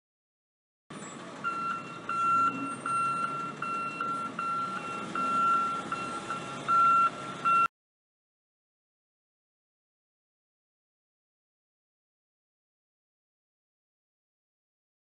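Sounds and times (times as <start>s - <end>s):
truck engine running: 0.9s - 7.7s
reversing alarm beeping: 1.0s - 7.7s.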